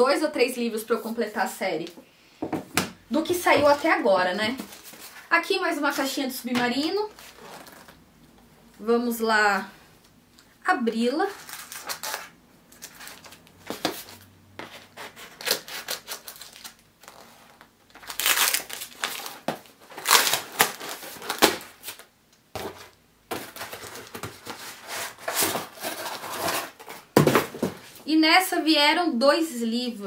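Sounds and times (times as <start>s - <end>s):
cardboard box tearing and rustling: 18.1s - 22.0s, 23.4s - 27.5s.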